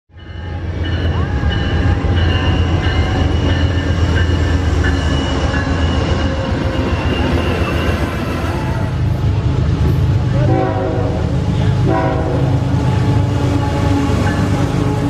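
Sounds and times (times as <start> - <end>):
train wheels rumbling on rails: 0.1 - 15.0
high-pitched whining tones: 0.2 - 9.4.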